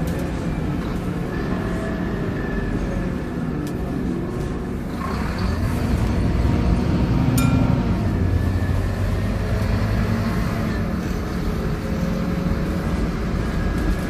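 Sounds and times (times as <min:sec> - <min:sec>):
bus engine rumble: 0:00.0 - 0:14.0.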